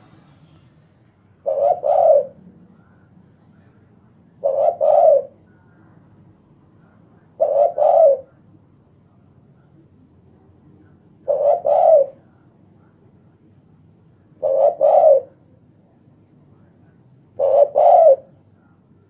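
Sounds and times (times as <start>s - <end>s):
dove cooing: 1.4s - 2.5s, 4.4s - 5.4s, 7.4s - 8.4s, 11.2s - 12.3s, 14.4s - 15.5s, 17.4s - 18.4s.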